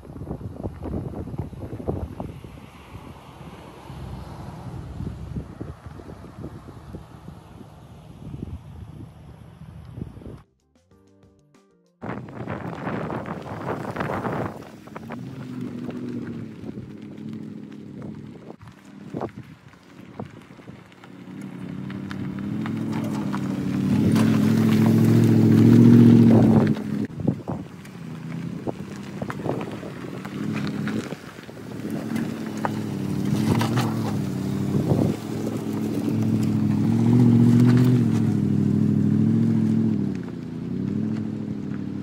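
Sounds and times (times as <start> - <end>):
tyres crunching over gravel: 12.0 - 42.0.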